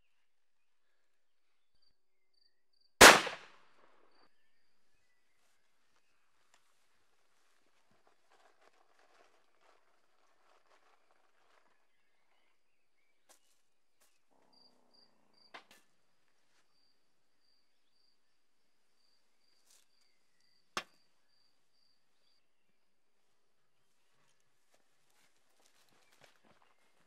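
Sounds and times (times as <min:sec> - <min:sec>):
faint high insect chirping: 0:12.0 - 0:23.1.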